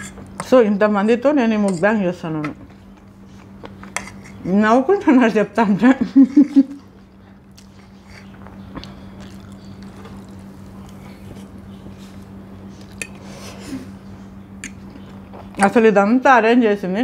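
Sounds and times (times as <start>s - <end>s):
steady low hum: 0.0s - 17.0s
quiet chewing: 6.8s - 13.8s.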